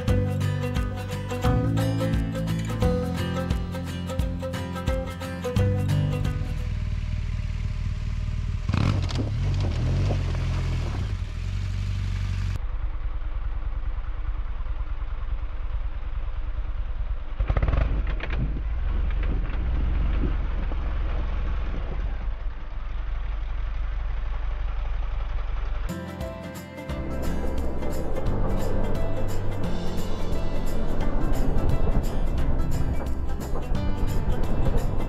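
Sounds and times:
motorcycle engine revving: 5.6s - 22.4s.

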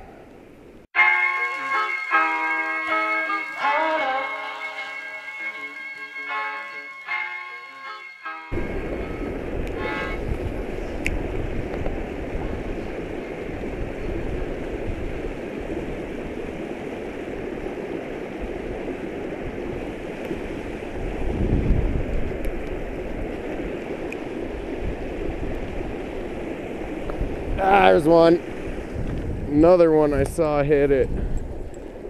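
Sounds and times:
water rushing over dam: 8.6s - 29.0s.

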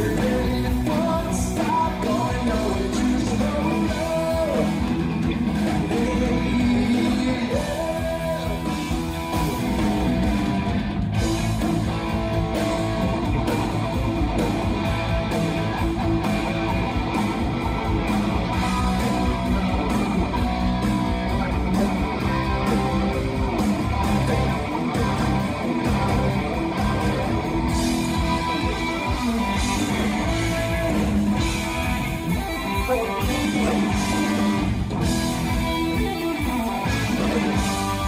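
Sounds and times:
bass guitar: 0.0s - 38.0s
drum kit: 0.0s - 38.0s
electric guitars: 0.0s - 38.0s.

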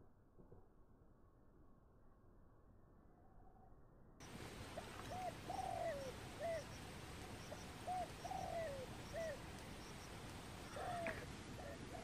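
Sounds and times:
pigeon cooing: 5.1s - 6.7s, 7.8s - 9.4s, 10.7s - 12.0s.

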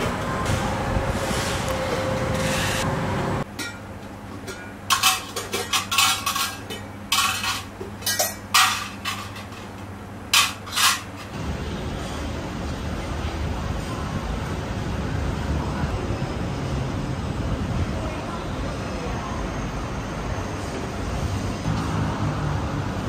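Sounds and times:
steady background noise: 0.0s - 23.0s
utensils clinking against pans: 3.5s - 11.4s.

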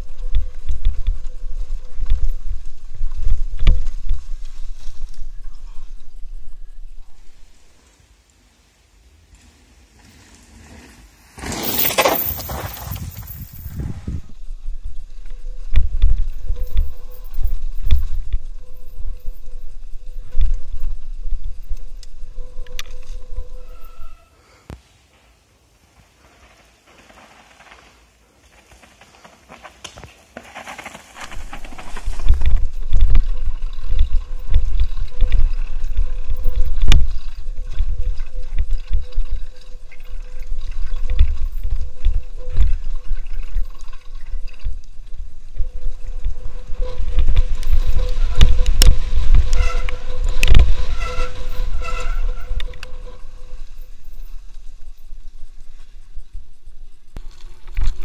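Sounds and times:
wind rumbling on microphone: 0.0s - 7.9s, 11.7s - 24.2s, 30.7s - 58.0s
bike rattling over rocks: 9.4s - 13.8s, 26.2s - 41.8s.

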